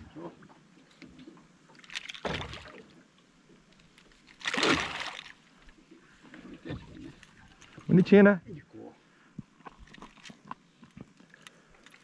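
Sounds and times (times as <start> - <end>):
water splashing: 1.8 - 3.0, 4.3 - 5.6.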